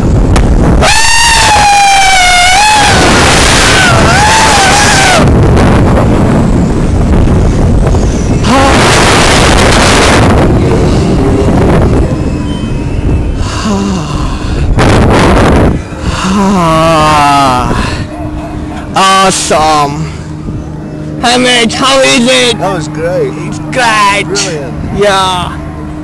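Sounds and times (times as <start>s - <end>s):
wind buffeting microphone: 0.0s - 21.8s
riders screaming: 0.8s - 5.4s.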